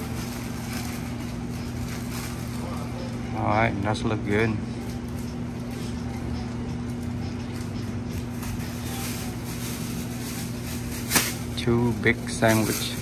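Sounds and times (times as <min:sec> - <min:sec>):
paper and plastic rustling: 0:00.0 - 0:03.2, 0:06.9 - 0:13.0
electrical hum: 0:00.0 - 0:13.0.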